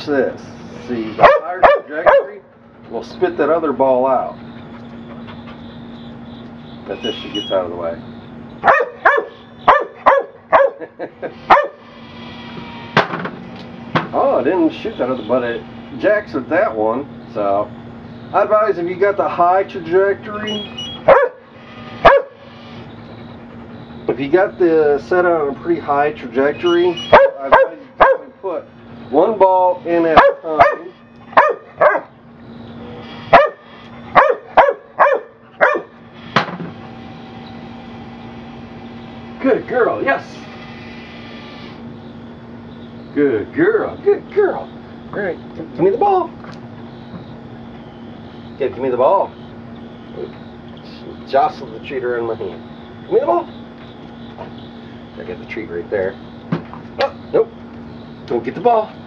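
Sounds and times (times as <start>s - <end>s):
ball machine whirring: 0.0s - 59.0s
dog barking: 1.2s - 2.4s, 8.6s - 10.9s, 11.5s - 11.8s, 21.0s - 21.4s, 22.0s - 22.4s, 27.0s - 28.4s, 30.2s - 32.2s, 33.3s - 36.0s.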